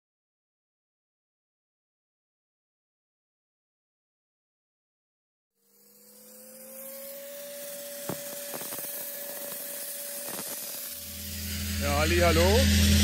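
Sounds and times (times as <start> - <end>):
steady whine: 5.6 - 13.0
dry-ice blasting gun hissing: 6.6 - 11.5.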